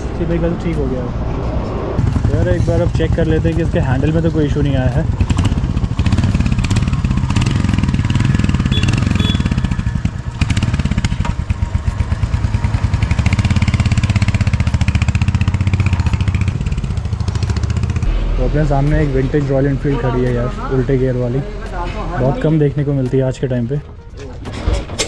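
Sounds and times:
motorcycle engine running: 2.0 - 18.2.

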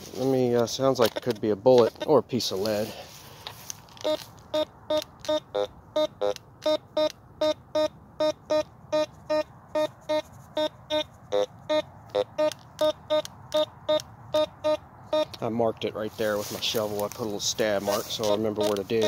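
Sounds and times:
metal detector beeping: 3.9 - 15.5.

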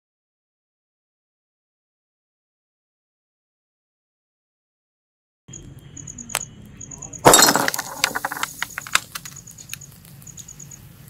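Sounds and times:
glass shards clinking and scattering: 7.2 - 9.1
glass bottle bursting: 7.2 - 9.2
faint rapid high ticking: 8.1 - 10.9.

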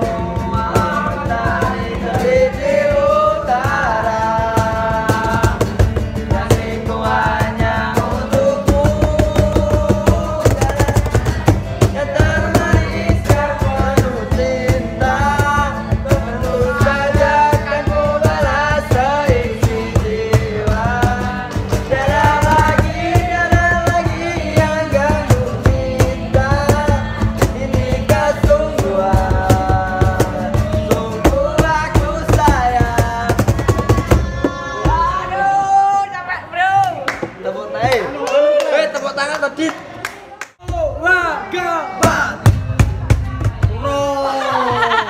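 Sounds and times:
young man singing: 0.0 - 36.1
acoustic guitar: 0.0 - 36.4, 40.6 - 45.0
cajon slapped by hand: 5.0 - 34.6.

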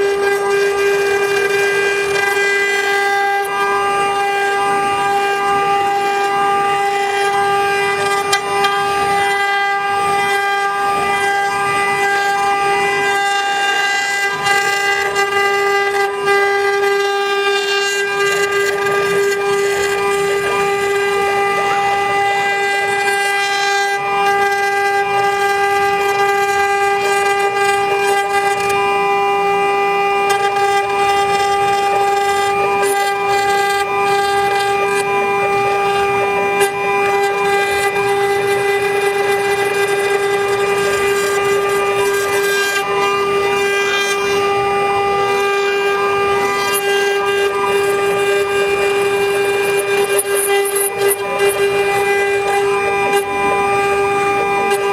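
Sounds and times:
router spindle motor whining: 0.0 - 54.9
bit carving wood hiss: 11.0 - 28.8, 29.8 - 54.9.

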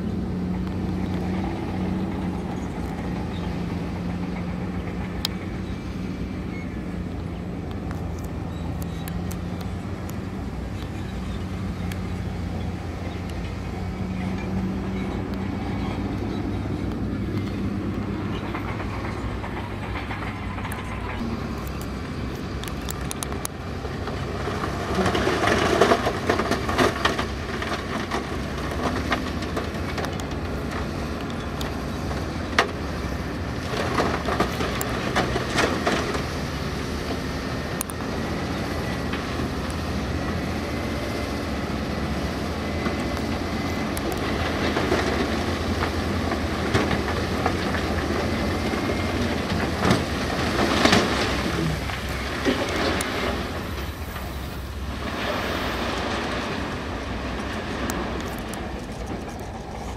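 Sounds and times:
heavy diesel machinery running: 0.0 - 59.9
clanks and rattles: 7.2 - 21.8.

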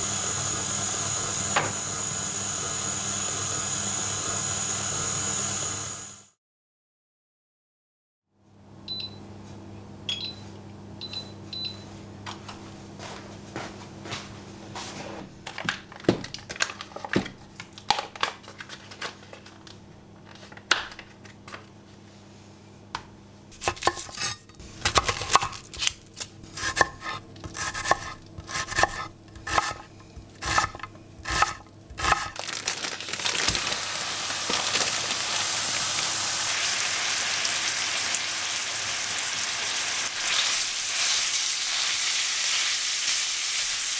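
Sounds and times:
knife chopping on wooden board: 23.6 - 25.9, 26.5 - 32.3
meat sizzling in frying pan: 33.3 - 43.9.

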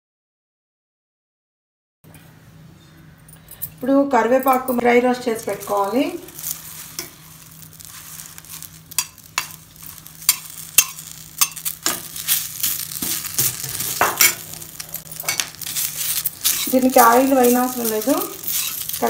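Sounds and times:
leaves hissing and crackling: 5.2 - 19.0
metal spatula scraping pan: 5.6 - 19.0.

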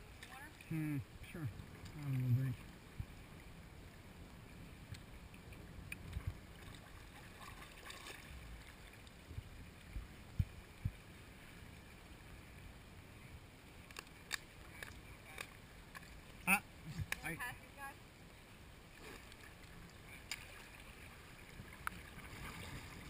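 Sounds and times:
water moving past kayak: 0.0 - 23.0
paddle splashing and dripping: 4.8 - 11.2, 18.9 - 23.0
soft low thumps: 9.3 - 11.0
small clicks: 13.9 - 16.1.

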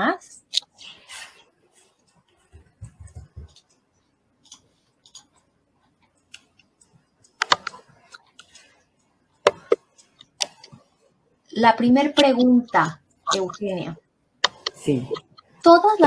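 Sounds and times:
keyboard and mouse clicks: 4.4 - 5.5, 6.1 - 10.8, 14.4 - 15.5.

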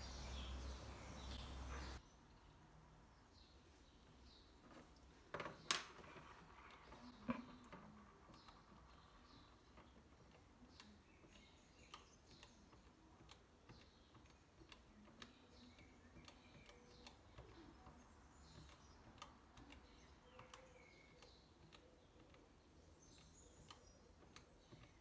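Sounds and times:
calculator keys clicking: 6.6 - 25.0.

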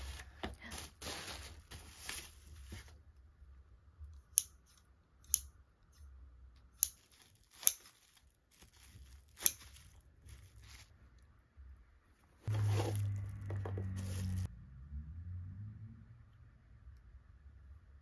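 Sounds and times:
bubble wrap rustling: 0.0 - 3.1, 6.9 - 11.2, 12.4 - 14.5
scissors blades clicking: 4.3 - 5.6.

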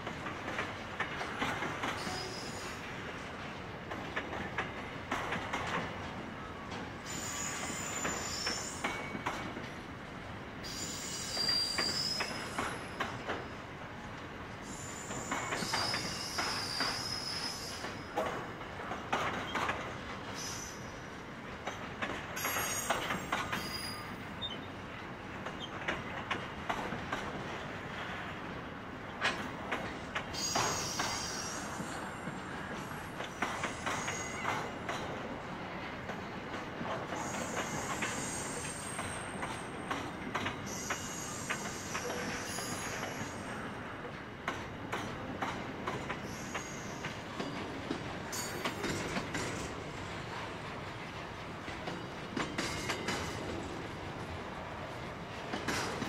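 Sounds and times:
train wheels clicking over rail joints: 0.0 - 9.8, 10.6 - 13.6, 14.2 - 56.0
high-pitched wheel squeal: 2.0 - 2.8.

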